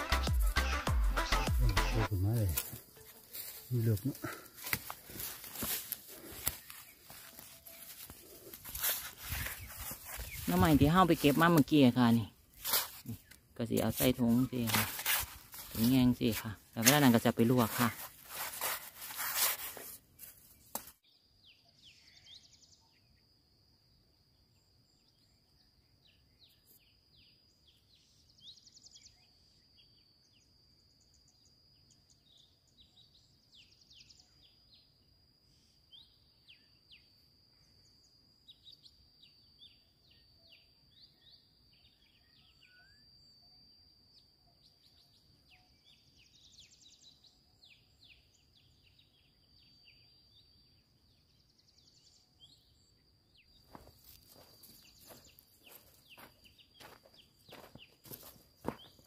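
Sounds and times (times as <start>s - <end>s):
birds chirping: 0.9s - 19.4s, 51.2s - 59.0s.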